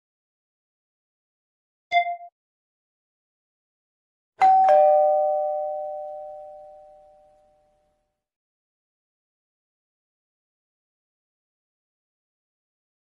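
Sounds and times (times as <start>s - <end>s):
two-note ding-dong chime: 4.4s - 7.7s.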